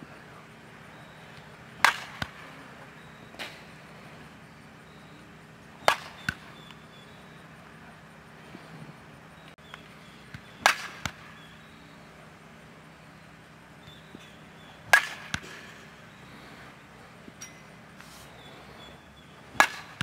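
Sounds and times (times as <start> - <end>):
softball bat hitting ball: 1.8 - 2.5, 5.8 - 6.8, 9.6 - 11.4, 14.2 - 15.8, 19.5 - 20.0.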